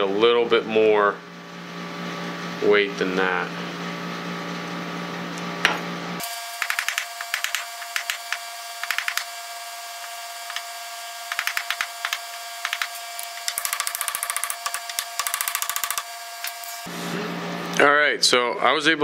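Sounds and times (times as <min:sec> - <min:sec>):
hammer tapping: 0:06.6 - 0:09.3, 0:10.5 - 0:10.7, 0:11.3 - 0:16.1.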